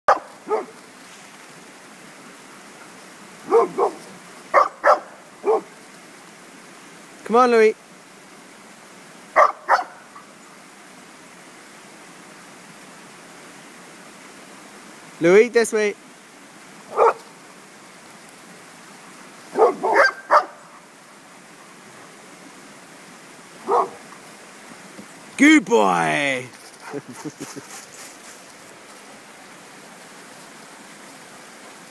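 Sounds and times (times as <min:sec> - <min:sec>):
dog barking: 0:00.1 - 0:00.8, 0:03.5 - 0:05.7, 0:09.4 - 0:10.0, 0:16.9 - 0:17.3, 0:19.5 - 0:20.6, 0:23.6 - 0:24.1.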